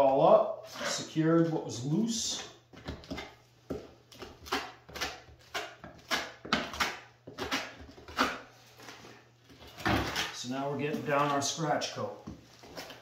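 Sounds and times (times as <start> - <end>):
trowel scraping wet plaster: 4.2 - 9.0.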